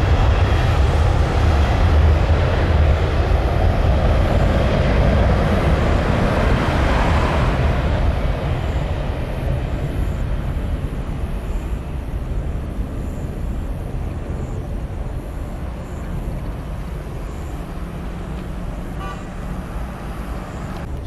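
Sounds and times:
jet engines rumbling: 0.0 - 21.0
car passing close: 4.1 - 9.1.

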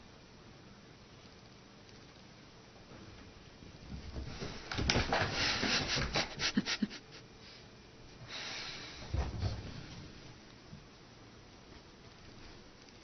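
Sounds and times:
animals scuffling and rustling: 2.8 - 6.4.

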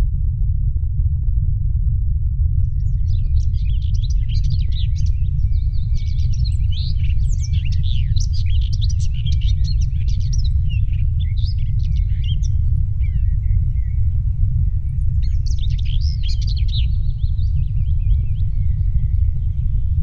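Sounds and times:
steady low rumble: 0.0 - 20.0
birds chirping in chorus: 3.6 - 14.0.

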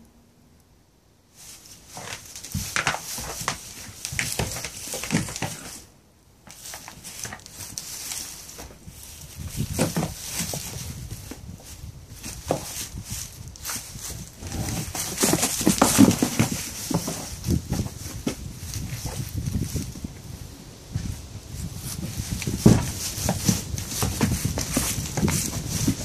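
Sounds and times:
straw rustling: 1.3 - 26.0
goat hoof steps: 1.4 - 26.0
goats butting knocks: 14.1 - 19.2, 22.4 - 26.0.

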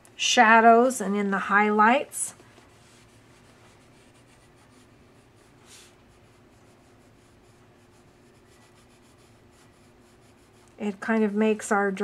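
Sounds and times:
pencil scratching on paper: 2.6 - 11.7.

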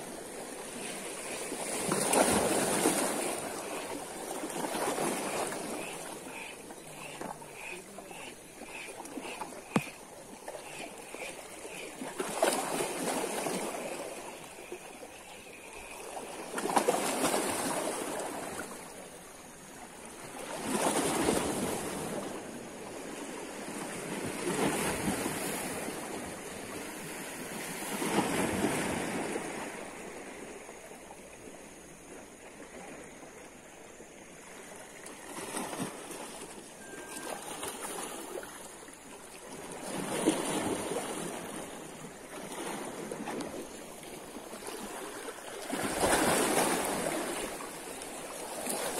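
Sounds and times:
waves washing against rocks: 0.0 - 5.7, 39.6 - 48.9.

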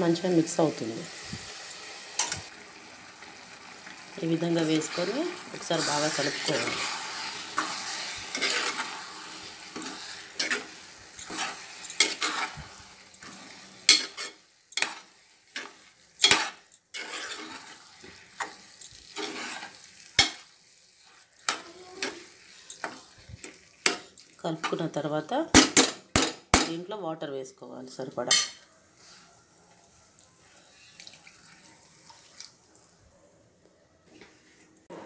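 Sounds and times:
spoon scraping grains in pot: 4.3 - 25.0
spoon clinking against metal pot: 11.2 - 12.4.

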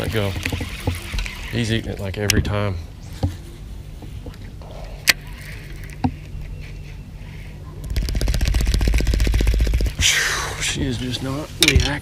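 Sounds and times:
fishing reel rattling: 0.0 - 1.8, 7.9 - 10.0.

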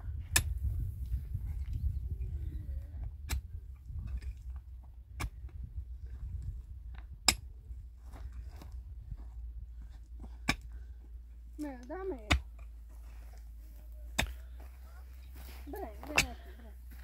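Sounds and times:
low steady rumble: 0.0 - 17.0
pickaxe striking stony soil: 5.2 - 5.4, 7.2 - 7.5, 10.4 - 10.7, 14.1 - 14.4, 15.9 - 17.0.

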